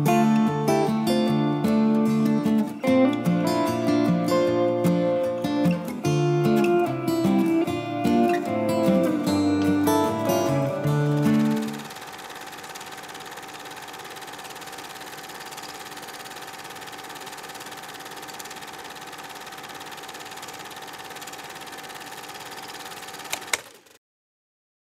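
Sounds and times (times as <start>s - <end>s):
small machine whirring: 8.9s - 24.0s
sharp click: 23.3s - 23.7s.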